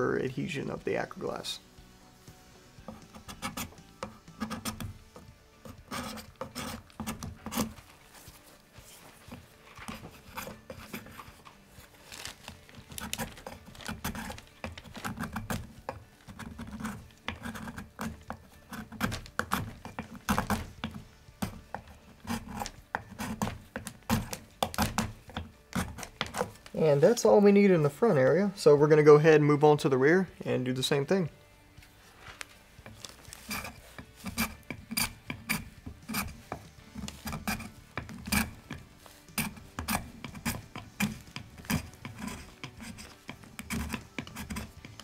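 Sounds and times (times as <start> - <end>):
scraping tool rasping wood: 2.9 - 7.9, 9.3 - 26.6, 32.8 - 45.0.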